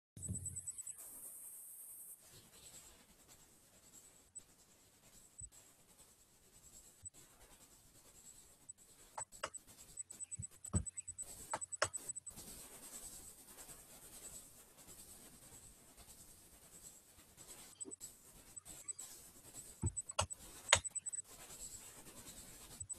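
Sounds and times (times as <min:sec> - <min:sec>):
faint high whine: 0:00.2 - 0:02.9, 0:03.9 - 0:13.3, 0:17.4 - 0:22.9
light clicks and taps at desk: 0:09.2 - 0:12.2, 0:19.8 - 0:21.1.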